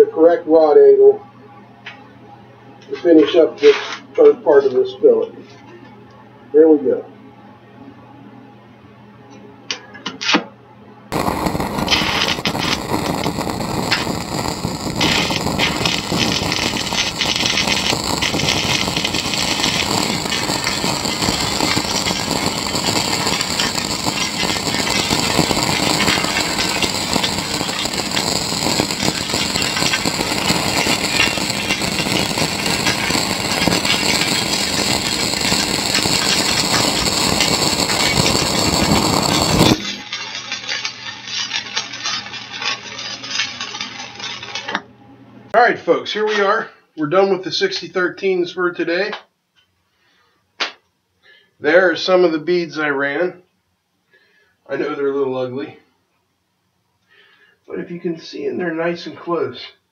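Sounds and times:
welding arc crackling: 11.1 - 44.8.

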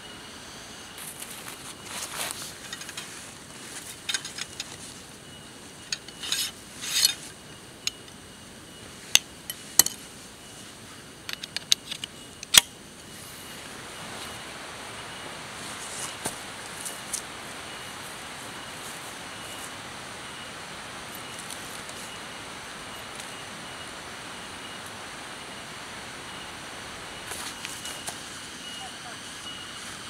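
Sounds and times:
metal poles clinking: 3.8 - 4.9, 5.8 - 7.3.

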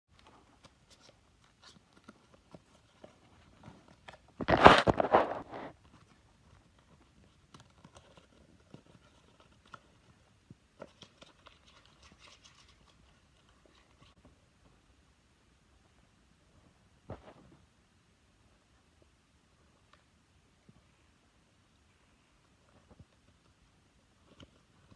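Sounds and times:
paper rustling: 0.1 - 14.3
paper crinkling: 0.2 - 14.2.

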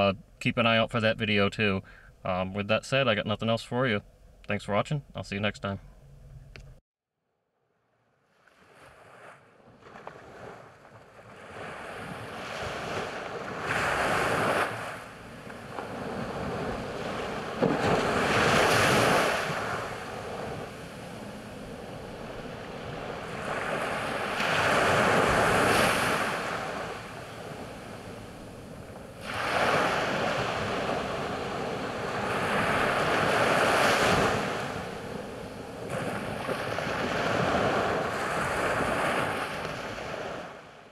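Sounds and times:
waves breaking on sandy beach: 8.3 - 40.9.

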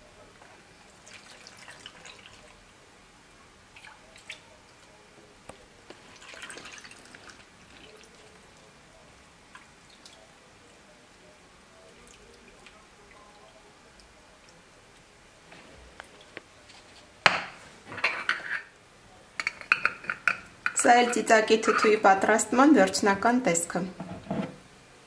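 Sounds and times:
liquid trickling and dripping: 0.9 - 2.6, 3.7 - 5.0, 5.9 - 8.7, 9.5 - 10.8, 11.8 - 15.1.

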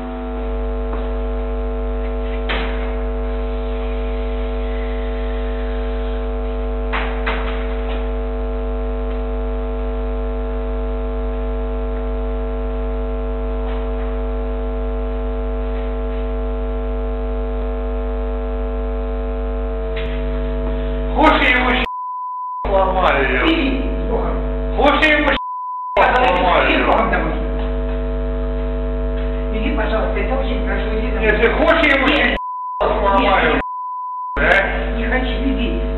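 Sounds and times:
burst of noise: 0.0 - 21.9
electrical mains hum: 0.0 - 22.0, 22.7 - 35.9.

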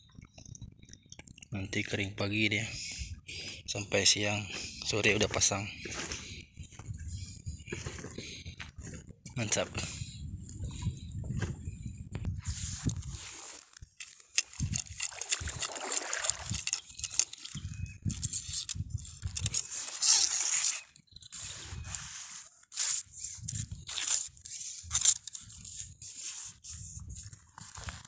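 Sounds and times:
seawater sloshing and splashing: 15.0 - 16.8.

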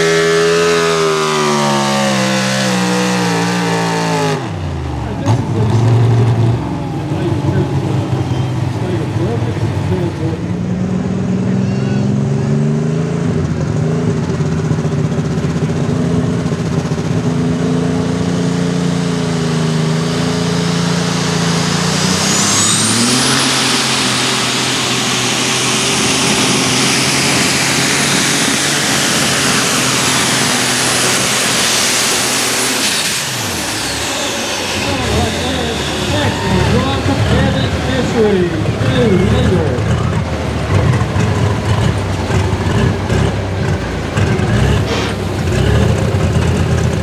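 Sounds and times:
tractor engine at full throttle: 0.0 - 47.0
truck engine running hard: 0.0 - 47.0
high steady whine: 21.0 - 39.8.

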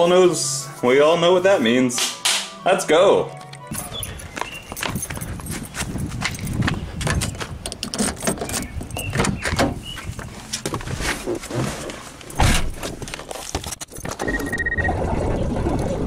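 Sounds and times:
handling clicks and knocks: 3.3 - 10.9
car door opening: 12.3 - 13.0.

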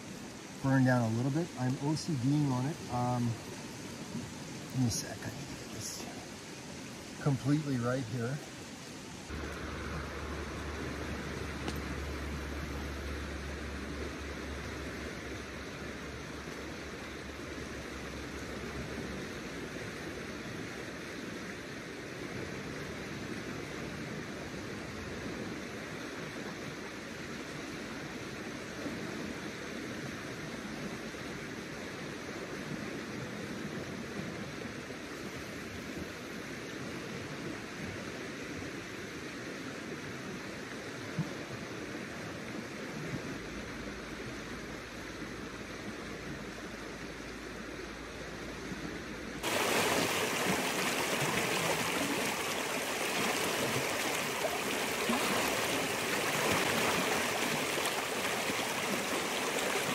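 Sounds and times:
river rushing over rocks: 0.0 - 23.8, 49.3 - 59.9.

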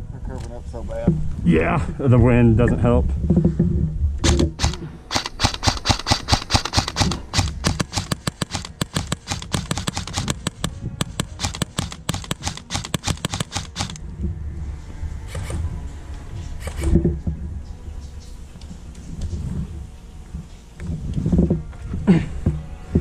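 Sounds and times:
airsoft rifle shots: 4.2 - 14.0, 15.3 - 15.6.

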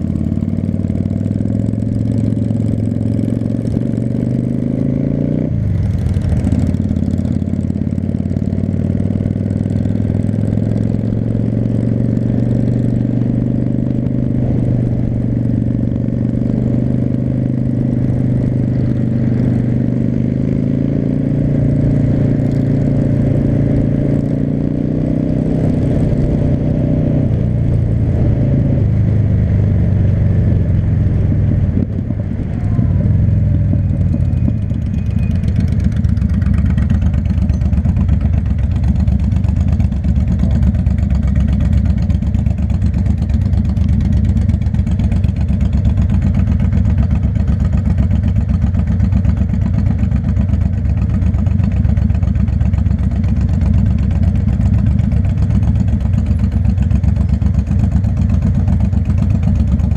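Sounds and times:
motorcycle engine idling: 0.0 - 4.0, 29.0 - 59.9
motorcycle engine running: 0.0 - 59.9.

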